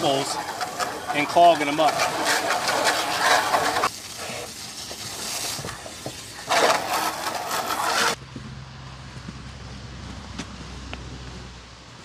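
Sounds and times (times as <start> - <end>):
hose spraying into plastic barrel: 0.0 - 8.2.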